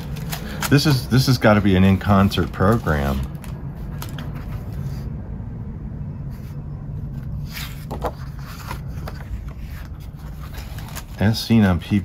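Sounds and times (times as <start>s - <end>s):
paper crackles: 0.0s - 5.0s, 7.4s - 12.0s
glossy paper rustling: 0.0s - 5.1s, 6.4s - 12.0s
steady low rumble: 0.0s - 12.0s.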